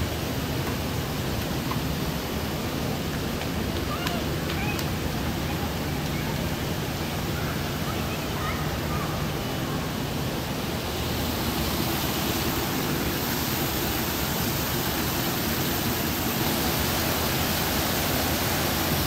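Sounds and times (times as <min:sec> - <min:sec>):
water splashing into pond: 0:10.6 - 0:19.0.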